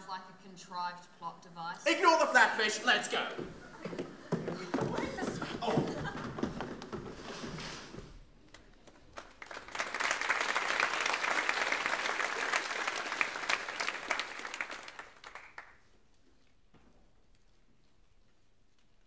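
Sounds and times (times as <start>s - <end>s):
audience applauding: 8.8s - 15.8s.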